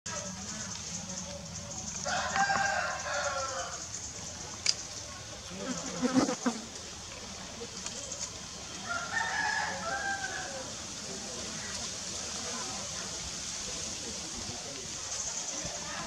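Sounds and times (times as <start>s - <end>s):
insects buzzing: 0.1s - 16.0s.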